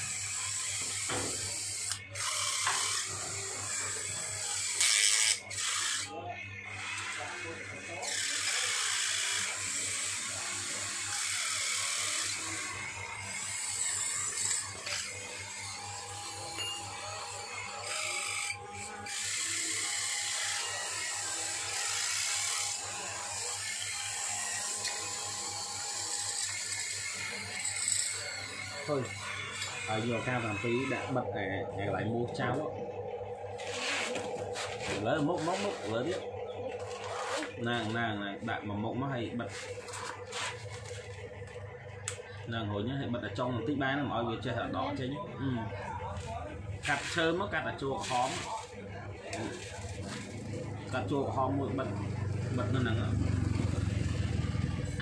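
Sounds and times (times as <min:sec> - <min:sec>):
toy motors whirring: 0:00.0 - 0:06.2, 0:06.8 - 0:31.2, 0:33.5 - 0:38.0, 0:39.5 - 0:42.2, 0:48.0 - 0:51.1.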